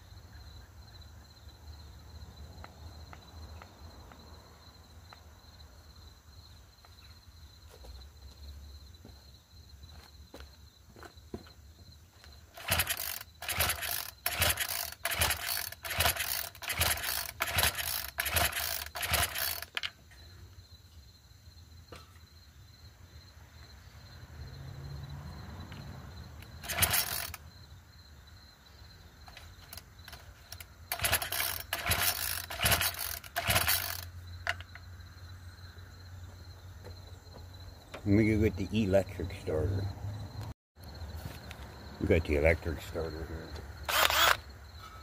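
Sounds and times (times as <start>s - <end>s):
recoil starter rope whirring: 12.5s - 19.9s, 26.4s - 27.4s, 29.3s - 34.6s, 43.9s - 44.4s
starter pawls ratcheting: 12.5s - 20.0s, 26.4s - 27.4s, 29.3s - 34.8s, 43.9s - 44.4s.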